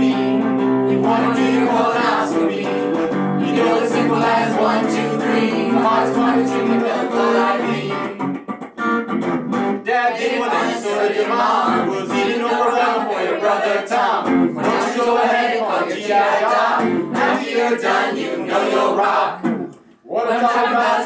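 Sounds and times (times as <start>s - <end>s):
group singing in chorus: 0.0s - 8.2s, 9.8s - 21.0s
electric guitar: 0.0s - 9.9s, 11.6s - 12.4s, 14.2s - 14.8s, 16.8s - 17.4s, 19.4s - 19.8s.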